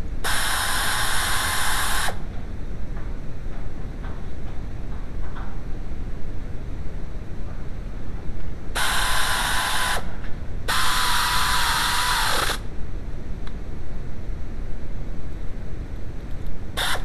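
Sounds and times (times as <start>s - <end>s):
power tool whining: 8.8s - 10.1s, 10.7s - 12.6s, 16.8s - 17.0s.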